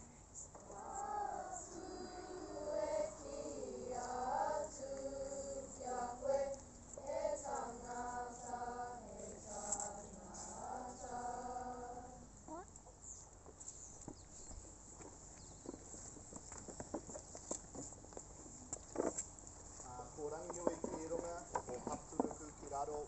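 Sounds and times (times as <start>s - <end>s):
children singing together: 0.6s - 12.3s.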